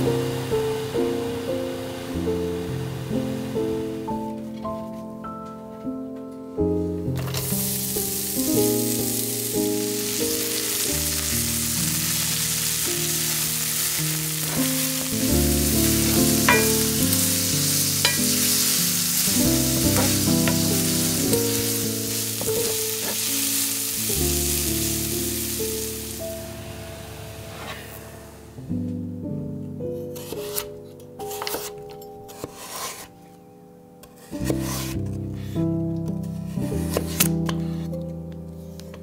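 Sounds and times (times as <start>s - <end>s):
background music: 0.0s - 39.0s
onion sizzling in hot oil: 7.2s - 27.7s.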